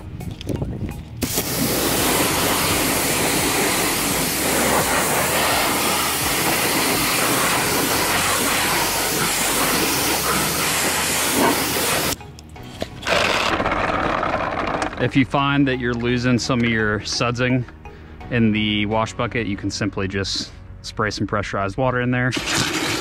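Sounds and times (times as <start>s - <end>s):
pressure washer spraying water: 1.2s - 12.2s, 22.4s - 23.0s.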